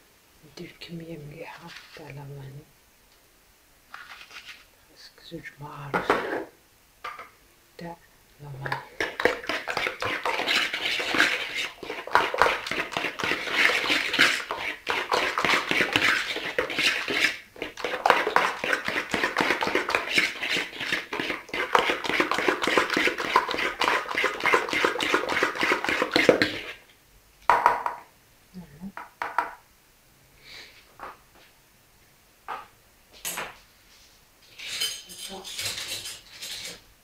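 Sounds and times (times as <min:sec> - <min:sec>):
fork whisking liquid in plastic bowl: 0:08.6 - 0:26.8.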